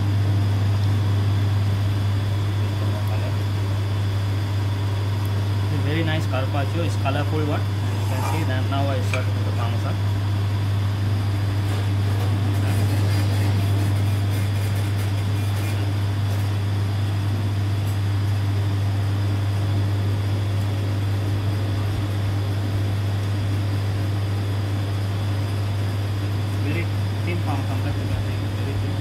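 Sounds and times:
low machine hum: 0.0 - 29.0.

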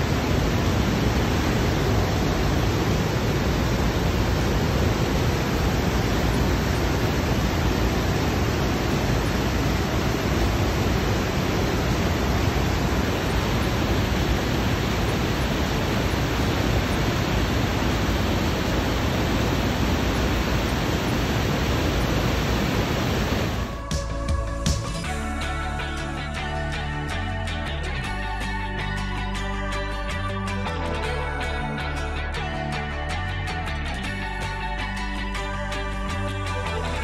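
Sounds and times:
waterfall rushing: 0.0 - 23.9.

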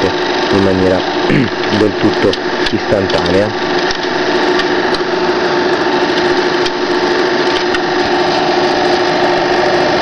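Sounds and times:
film projector whirring: 0.0 - 10.0.

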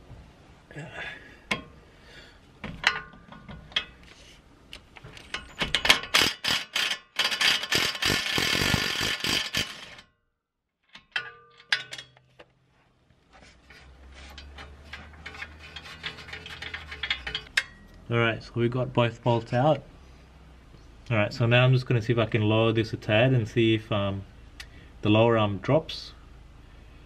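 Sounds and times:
metallic clicks of tool and bolt: 2.8 - 4.1, 4.7 - 10.1, 10.8 - 12.5, 14.2 - 18.0
impact wrench hammering: 5.5 - 10.1.

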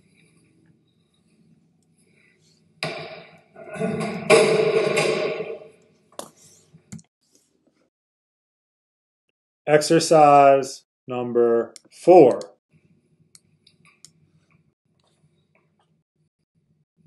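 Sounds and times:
barbell clanking down: 2.8 - 5.7.

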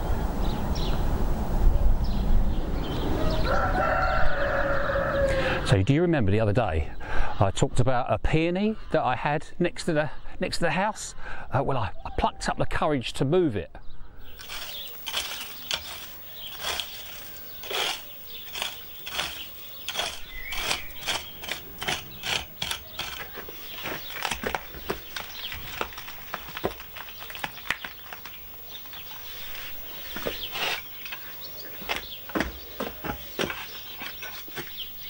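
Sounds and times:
spade digging stony soil: 14.4 - 28.4, 29.0 - 32.1.

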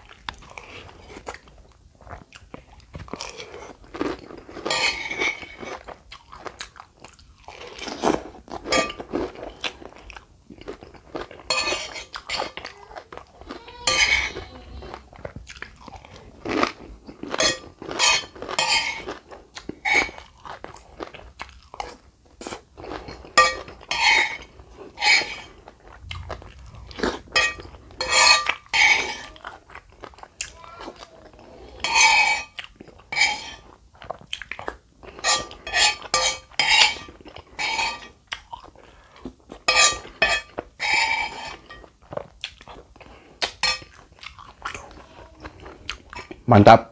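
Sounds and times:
chewing and crunching: 0.0 - 46.5
spoon scraping on plate: 4.6 - 5.8, 7.6 - 9.2, 11.5 - 12.7, 13.4 - 15.0, 16.5 - 19.2, 19.8 - 20.3, 22.4 - 25.7, 26.9 - 29.4, 31.7 - 33.8, 35.1 - 38.2, 39.6 - 41.9, 43.4 - 44.0.

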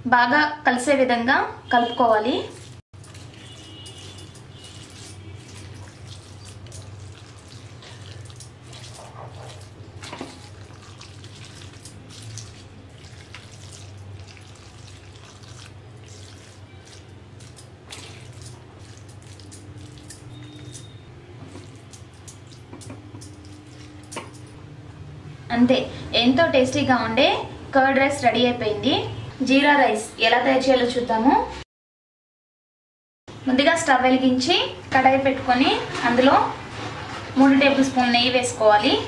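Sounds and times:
wet squishing of rice: 2.2 - 24.2.

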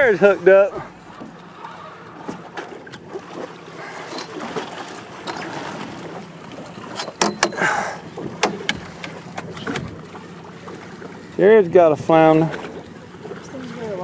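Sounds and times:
water lapping against boat hull: 0.0 - 14.0
sharp slaps on hull: 0.7 - 11.4.

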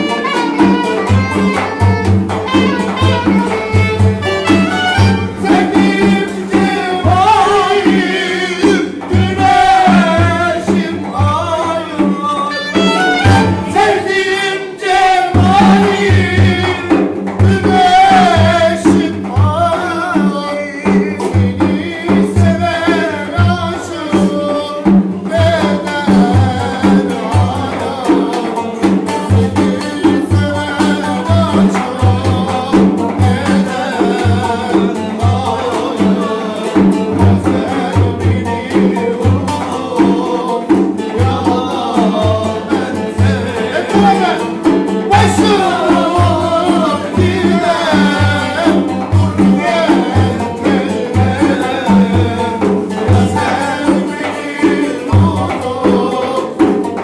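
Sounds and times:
frame drum beat: 0.0 - 57.0
men singing: 0.0 - 57.0
strummed long-necked lute: 0.0 - 57.0.

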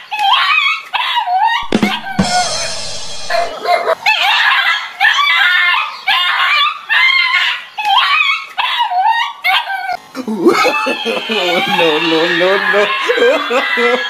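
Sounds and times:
dog barking and yelping: 2.9 - 10.0.

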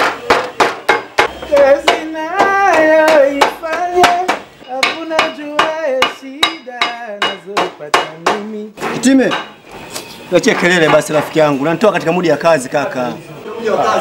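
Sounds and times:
hammer striking sheet metal: 0.0 - 9.6
man singing a slow tune: 1.4 - 8.8.

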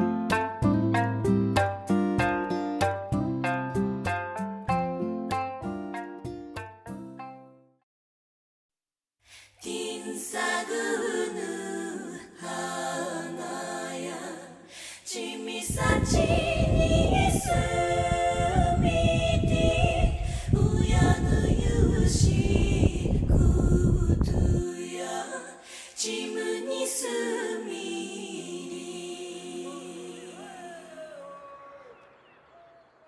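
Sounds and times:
several voices singing: 9.6 - 32.4.

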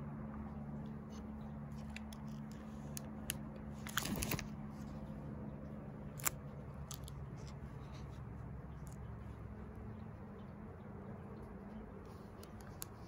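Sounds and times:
steady low hum: 0.0 - 13.0
plastic photo sleeves crinkling: 1.7 - 5.1.

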